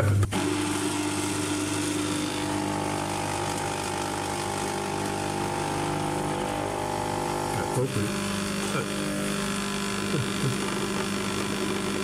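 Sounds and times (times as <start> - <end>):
espresso machine pump buzzing: 0.0 - 12.0.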